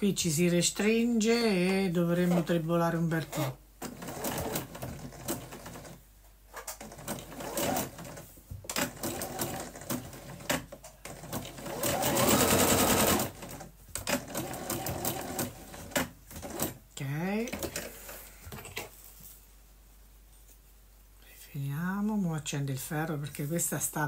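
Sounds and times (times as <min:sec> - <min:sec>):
electric sewing machine stitching: 0:03.4 - 0:06.0, 0:06.8 - 0:16.8.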